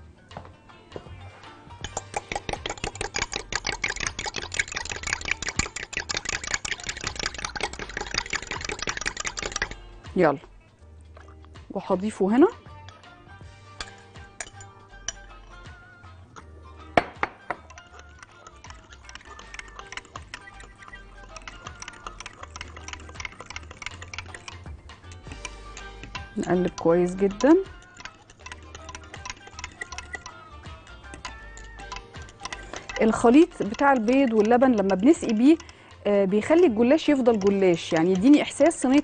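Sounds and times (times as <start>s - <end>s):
background music: 0.0s - 39.0s
fork clinking against glass: 1.8s - 9.8s, 13.8s - 15.7s, 17.5s - 35.9s
whisk clicking against glass jug: 1.8s - 9.8s, 17.0s - 39.0s.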